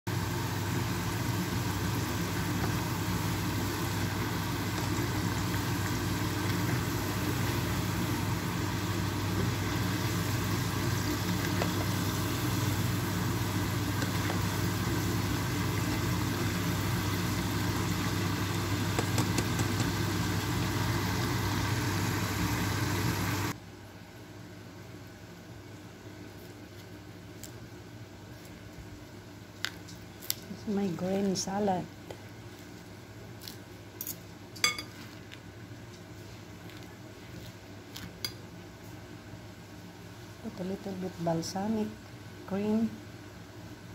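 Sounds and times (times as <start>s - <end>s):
food deep-frying in oil: 0.1s - 23.6s.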